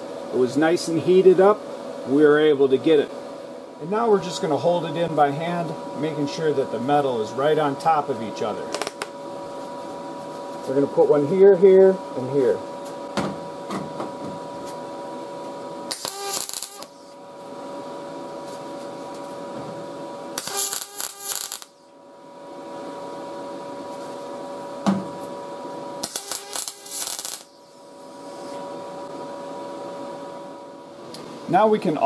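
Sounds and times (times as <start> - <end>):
welder arc crackling: 8.6 - 9.2, 15.9 - 17.2, 20.3 - 22.0, 26.0 - 28.6.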